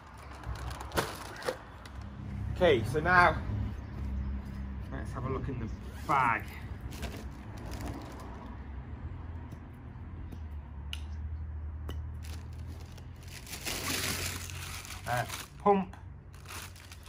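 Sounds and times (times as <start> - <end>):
bag rustling and crinkling: 12.2 - 15.6, 16.4 - 17.0.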